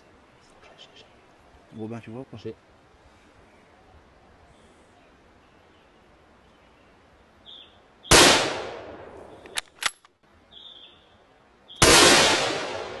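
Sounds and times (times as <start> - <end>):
gunshots ringing out: 8.1 - 9.0, 11.8 - 13.0.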